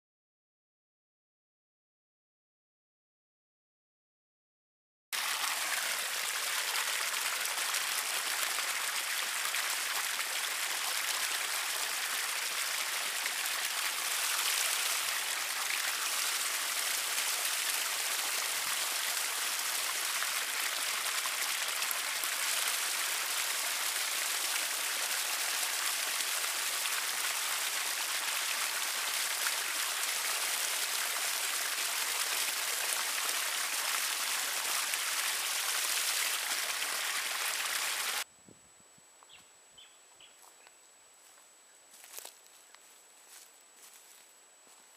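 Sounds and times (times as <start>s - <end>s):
stream splashing over rocks: 5.2s - 38.2s.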